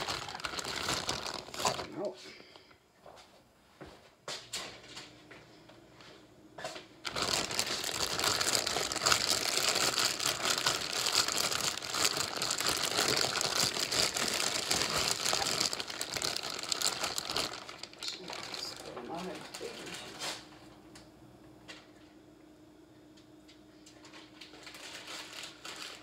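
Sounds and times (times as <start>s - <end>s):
plastic bag crinkling: 0.0s - 2.6s, 7.0s - 20.4s, 24.1s - 26.0s.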